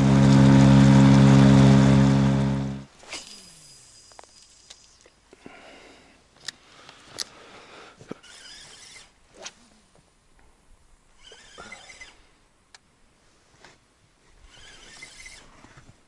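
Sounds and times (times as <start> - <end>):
boat motor shutting off: 0.0 - 2.9
faint scratchy rustles: 13.2 - 16.0.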